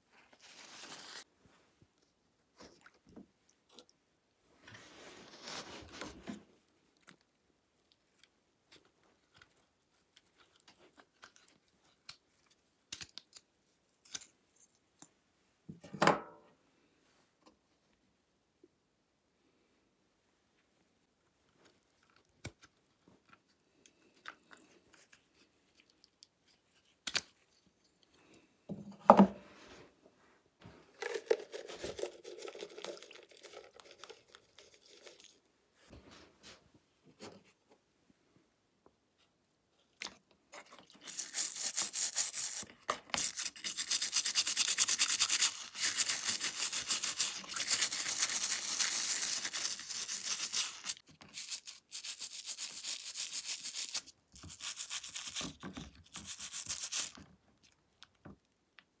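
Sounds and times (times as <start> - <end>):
powder pouring into water: 31.0 - 35.3.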